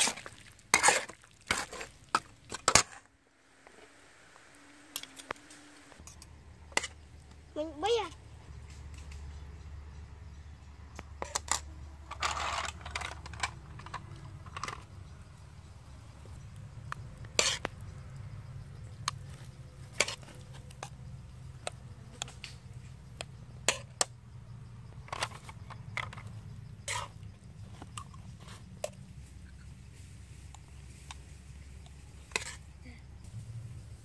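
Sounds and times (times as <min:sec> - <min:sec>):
spoon scraping: 0:32.2 - 0:32.6.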